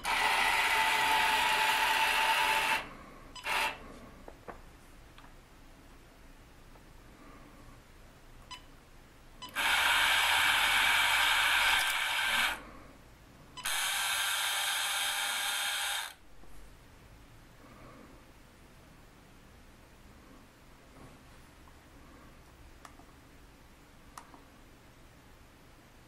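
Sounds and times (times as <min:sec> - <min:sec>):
toy electric motor whirring: 0:00.0 - 0:02.8, 0:03.4 - 0:03.8, 0:09.5 - 0:12.6, 0:13.6 - 0:16.2.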